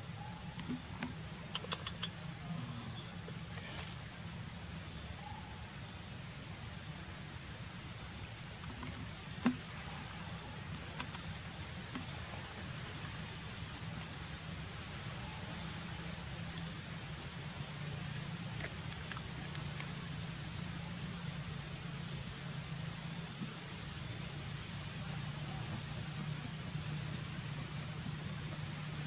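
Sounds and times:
steady low hum: 0.0 - 29.0
sharp clicks: 0.6 - 2.2.

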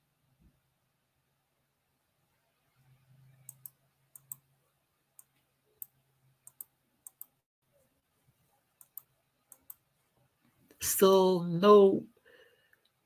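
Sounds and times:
computer mouse clicking: 3.3 - 4.4, 5.2 - 7.4, 8.8 - 9.8.

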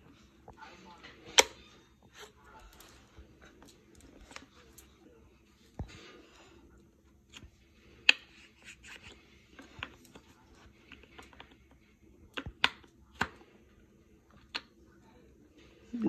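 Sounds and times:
wooden puzzle piece tapping board: 12.3 - 13.4.

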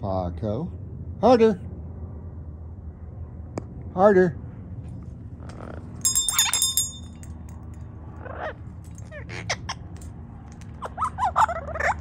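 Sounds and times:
small metal bell ringing: 6.0 - 7.8
parrot squawking: 8.2 - 9.9, 10.8 - 12.0.

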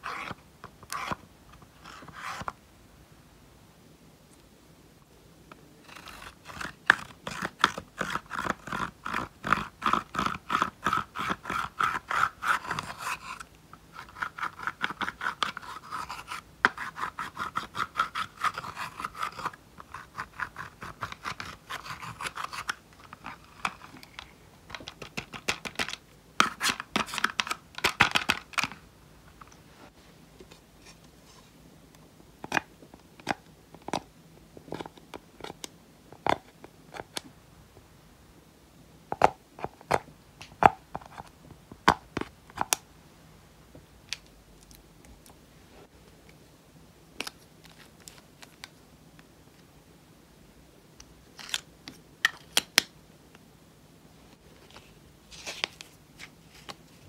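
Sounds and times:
metal tool scratching powder: 5.9 - 22.7.

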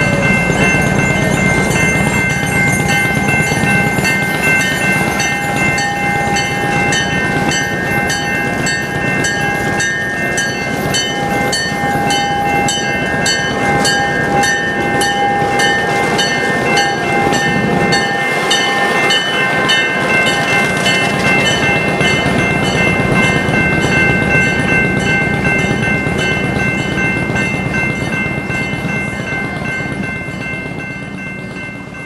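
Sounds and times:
diesel locomotive: 0.0 - 32.0
railroad crossing bell ringing: 0.0 - 32.0
train coaches rumbling: 0.0 - 32.0.

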